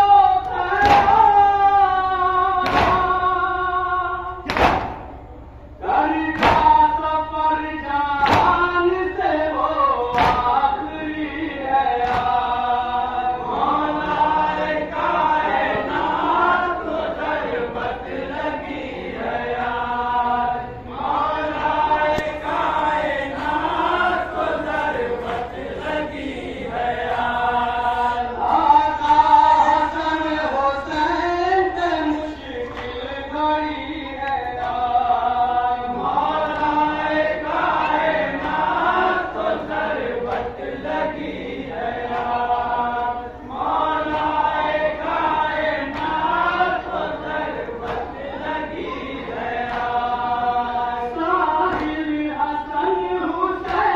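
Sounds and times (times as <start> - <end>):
men chanting a lament: 0.0 - 53.9
hands beating on chests: 2.6 - 3.2, 4.5 - 5.0, 6.4 - 6.8, 10.1 - 10.6.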